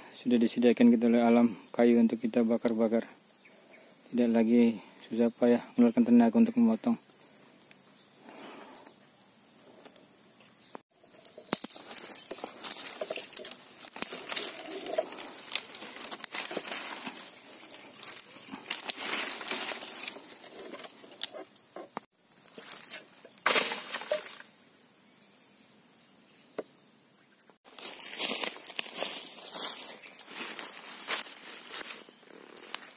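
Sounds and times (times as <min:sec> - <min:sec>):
dry leaves crackling and rustling: 0:11.1 - 0:21.3, 0:22.5 - 0:24.4, 0:27.7 - 0:32.9
twigs snapping: 0:11.1 - 0:21.4, 0:22.5 - 0:24.4, 0:27.7 - 0:32.0.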